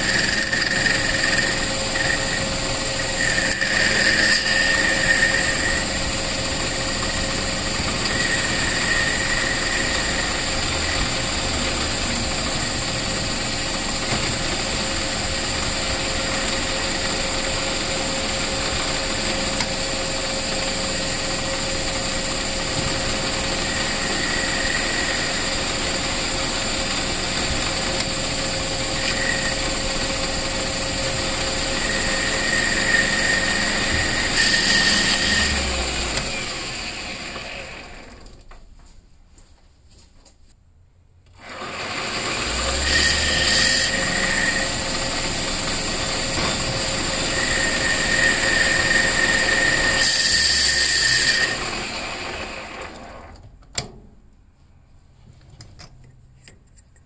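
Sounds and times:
high-pitched whine: 0.0 - 37.9
metal lathe humming: 0.0 - 38.2, 41.4 - 53.3.

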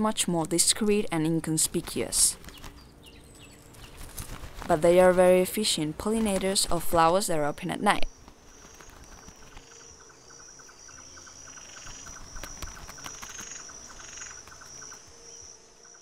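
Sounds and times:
crickets pulsed chirping: 5.8 - 16.0.

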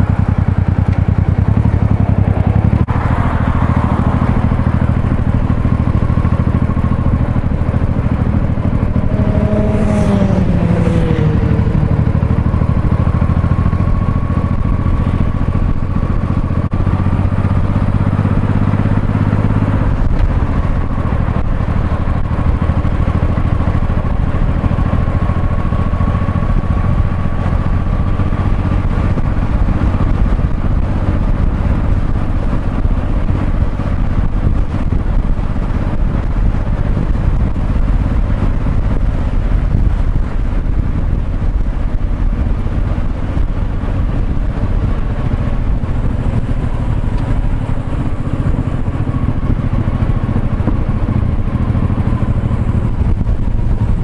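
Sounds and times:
motorcycle engine running: 0.0 - 54.0
pitched sound gliding downward: 8.5 - 13.9.

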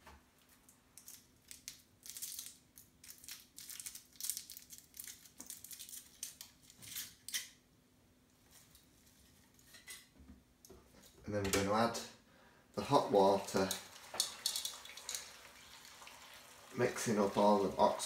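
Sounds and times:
foil wrapper crinkling: 1.0 - 7.4.

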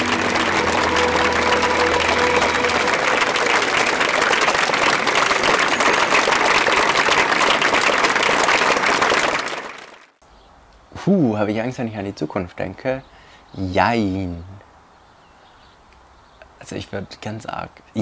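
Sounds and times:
held notes of music: 0.0 - 4.7
audience applauding: 0.0 - 10.2.

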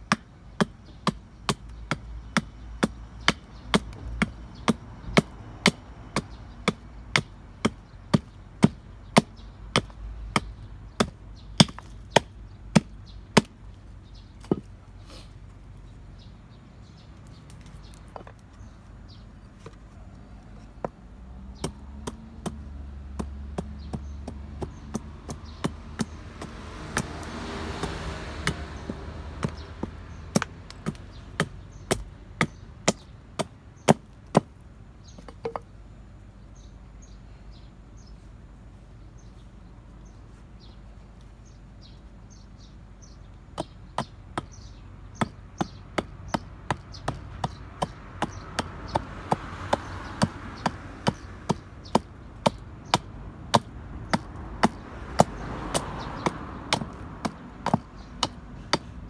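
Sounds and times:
hatchet chopping wood: 0.0 - 13.6, 14.4 - 14.7, 20.8 - 35.6, 43.5 - 59.0.

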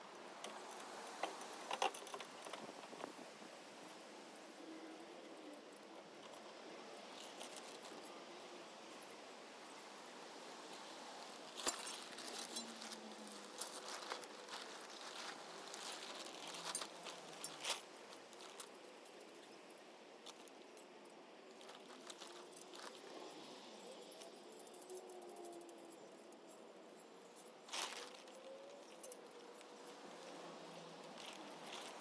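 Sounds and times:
light clicks and rattles: 0.3 - 3.2.

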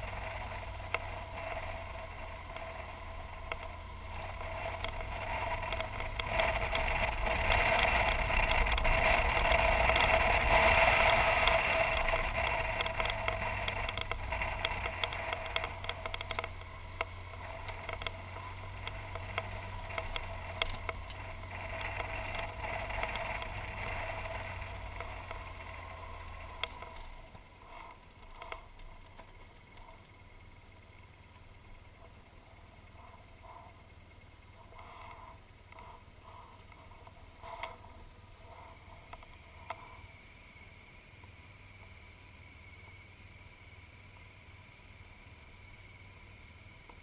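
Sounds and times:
tyre noise on gravel: 0.0 - 30.1
stones ticking: 0.0 - 32.3
motorcycle engine running: 0.0 - 47.0.

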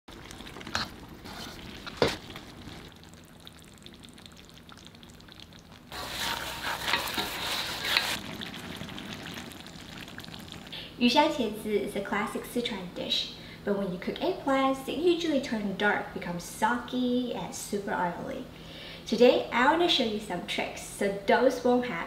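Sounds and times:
wooden spatula stirring: 0.1 - 2.9, 5.9 - 8.2
food sizzling in a wok: 5.9 - 10.7.

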